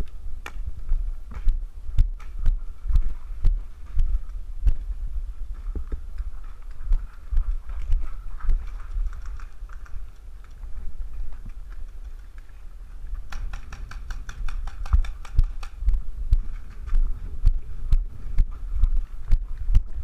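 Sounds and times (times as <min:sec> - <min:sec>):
wind rumble on microphone: 0:00.0 - 0:20.0
paintball marker firing: 0:13.3 - 0:15.8.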